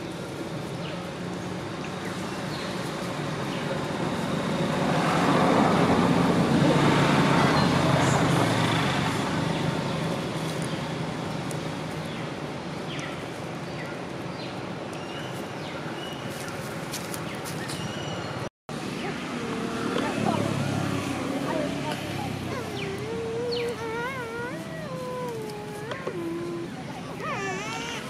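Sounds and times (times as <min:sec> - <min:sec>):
vehicle driving past: 0:18.8 - 0:23.1.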